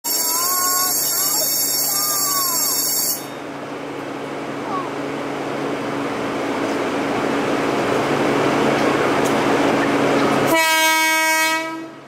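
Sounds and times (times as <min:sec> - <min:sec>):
train rushing noise: 0:00.1 - 0:12.0
train horn blast: 0:10.5 - 0:12.0.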